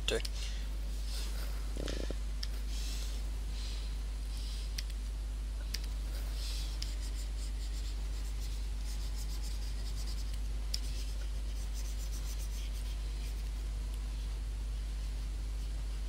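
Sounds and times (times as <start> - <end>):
stylus scratching on tablet: 6.3 - 13.6.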